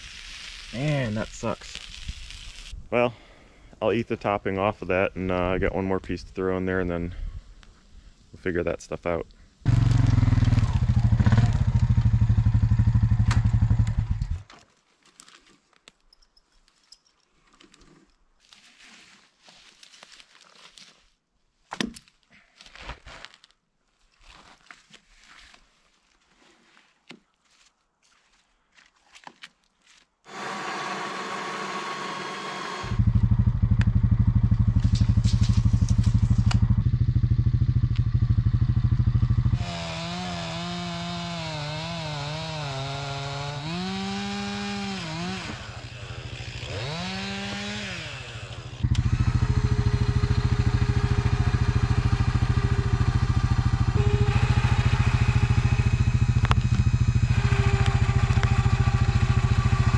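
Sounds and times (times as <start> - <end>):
chainsaw cutting a log: 9.7 - 14.3, 30.3 - 33.3, 39.5 - 59.9.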